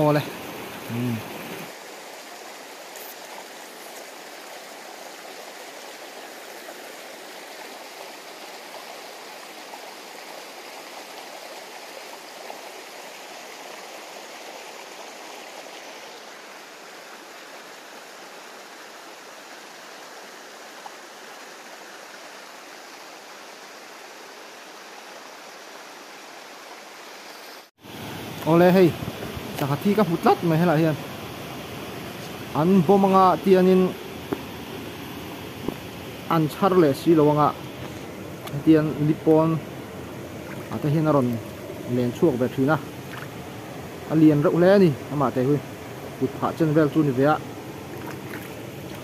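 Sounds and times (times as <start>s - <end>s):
stream flowing over rocks: 0.0s - 49.0s.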